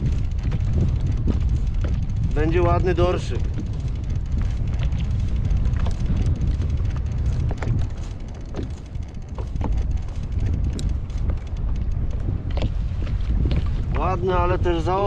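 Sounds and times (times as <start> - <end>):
short ticks and splashes: 0.0 - 15.0
strong wind buffeting microphone: 0.0 - 15.0.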